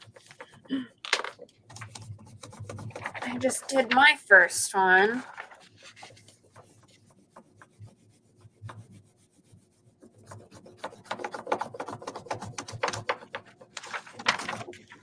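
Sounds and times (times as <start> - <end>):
crayon rubbing on paper: 1.7 - 3.9, 5.1 - 13.4.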